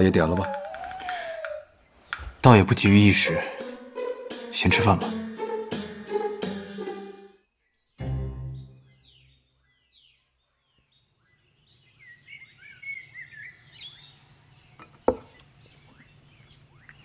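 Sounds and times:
small birds chirping: 0:00.0 - 0:04.3, 0:07.4 - 0:17.0
high insect drone: 0:00.0 - 0:17.0
low note: 0:03.0 - 0:07.3
sharp knock: 0:03.6 - 0:07.1.

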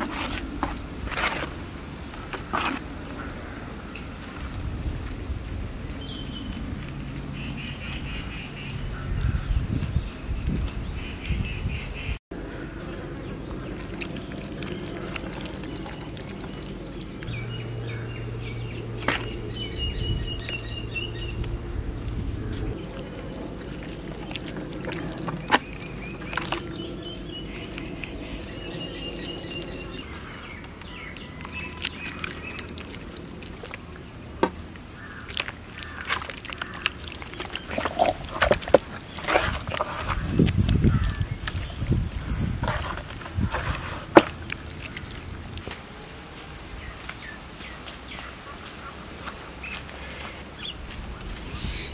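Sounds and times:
birds chirping: 0:05.8 - 0:45.8, 0:46.4 - 0:51.9
steady low hum: 0:12.4 - 0:31.5.

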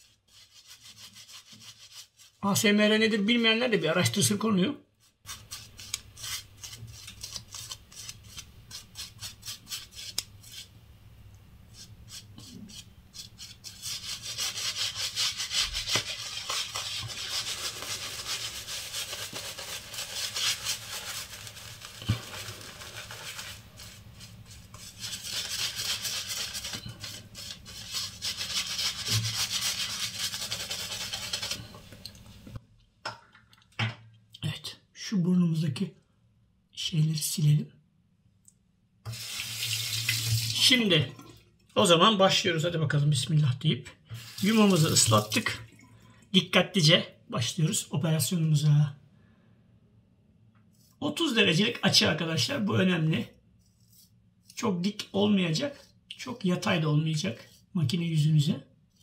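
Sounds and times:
shaving brush lathering on face: 0:05.0 - 0:10.7, 0:11.7 - 0:32.4, 0:44.2 - 0:45.5.

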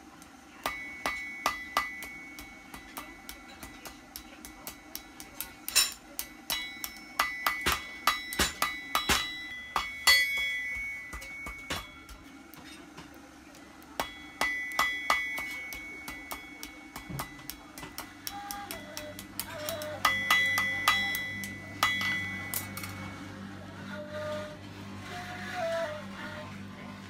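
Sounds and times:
hammer striking iron on anvil: 0:00.6 - 0:12.7, 0:14.0 - 0:23.2.

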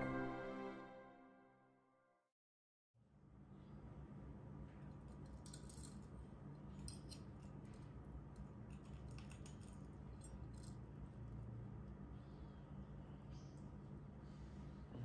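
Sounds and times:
steady low hum: 0:09.8 - 0:15.0.

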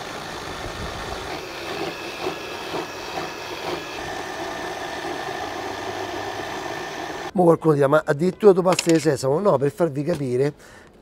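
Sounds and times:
food processor motor whining: 0:00.0 - 0:07.3.

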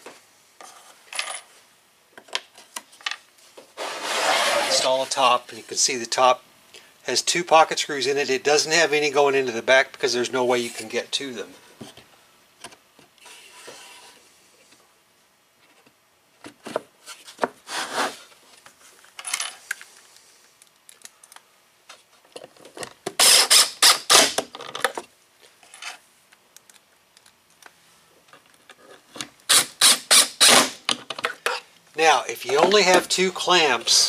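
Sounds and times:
cordless drill driving screws: 0:23.2 - 0:24.3.

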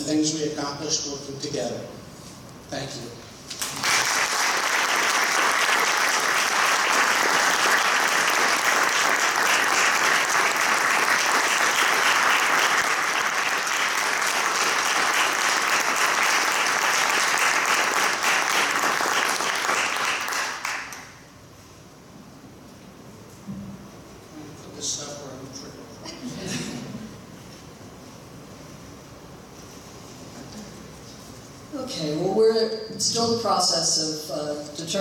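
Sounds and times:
people applauding: 0:03.5 - 0:21.2.

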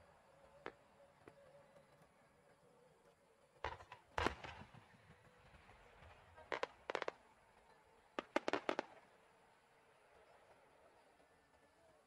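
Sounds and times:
firework crackling: 0:03.6 - 0:09.4.

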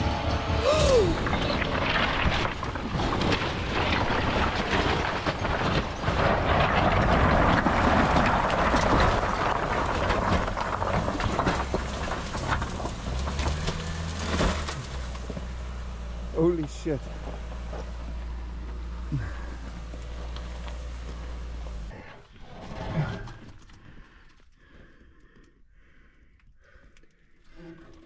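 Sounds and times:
car engine running: 0:00.0 - 0:03.2, 0:10.2 - 0:22.1
stones crunching under tyres: 0:01.1 - 0:24.6.

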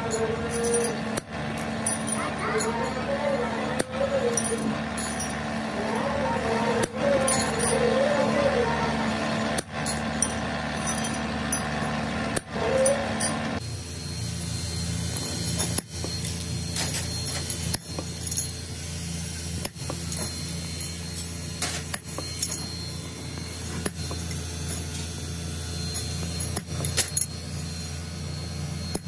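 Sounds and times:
low machinery hum: 0:00.0 - 0:29.0
metal clinks and taps: 0:00.1 - 0:03.0.

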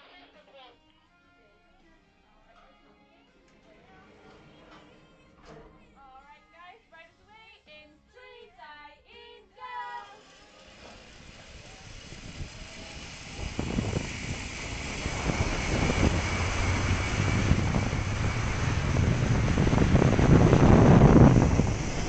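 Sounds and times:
wind rushing over microphone: 0:11.4 - 0:22.0.

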